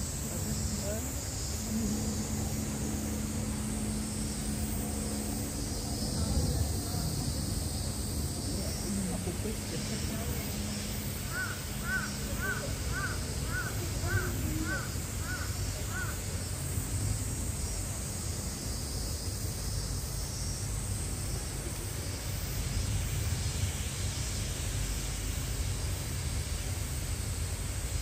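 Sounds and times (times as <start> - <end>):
low outdoor background rumble: 0.0 - 28.0
crow cawing: 11.3 - 16.2.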